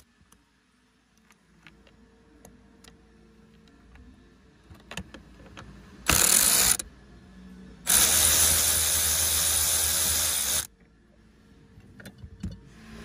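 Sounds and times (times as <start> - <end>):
cordless power tool spinning: 7.9 - 10.7.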